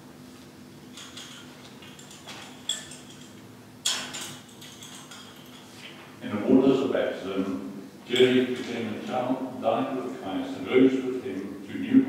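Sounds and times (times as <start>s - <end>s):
faint room hum: 0.0s - 12.0s
small metallic clicks and clinks: 0.9s - 5.8s.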